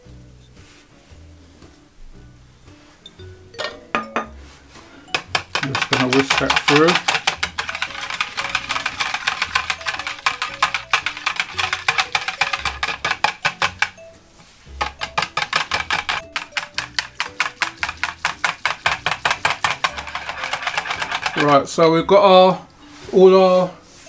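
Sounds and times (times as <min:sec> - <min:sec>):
light jazz music: 0:00.0 - 0:24.0
whisk rattling in plastic jug: 0:05.1 - 0:14.0, 0:14.8 - 0:22.0.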